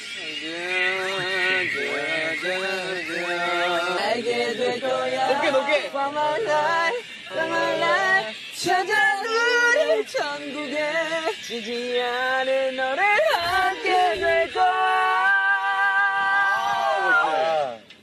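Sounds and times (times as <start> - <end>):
men singing unaccompanied: 0.2 - 16.4.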